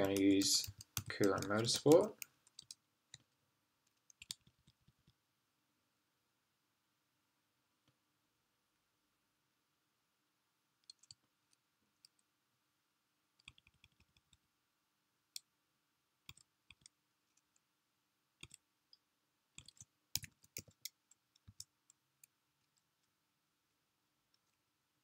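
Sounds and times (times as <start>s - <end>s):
keyboard typing clicks: 0.0s - 3.3s, 3.9s - 5.2s, 13.4s - 14.4s, 19.6s - 21.7s.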